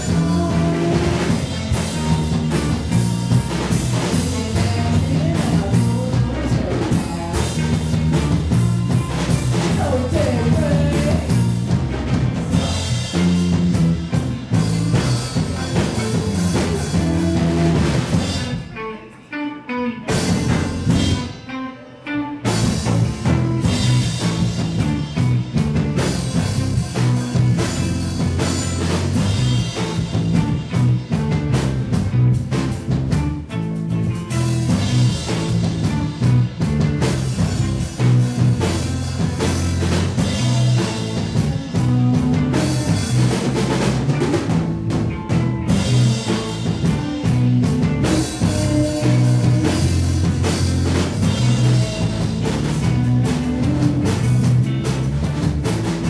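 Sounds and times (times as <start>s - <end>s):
drum kit beat: 0.0s - 19.0s, 19.9s - 21.6s, 22.4s - 56.0s
live rock band playing: 0.0s - 56.0s.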